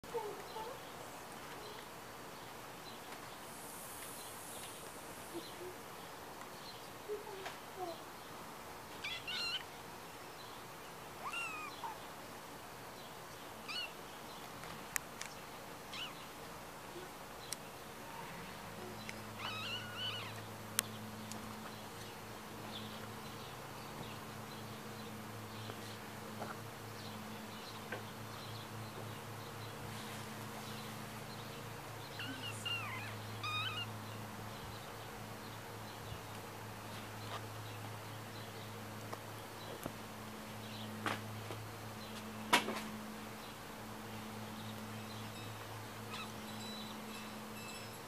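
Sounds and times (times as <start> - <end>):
high chirping calls: 9.0 - 9.8, 11.2 - 12.1, 13.6 - 14.0, 15.3 - 16.3, 18.8 - 21.1, 32.0 - 34.9, 45.0 - 48.0.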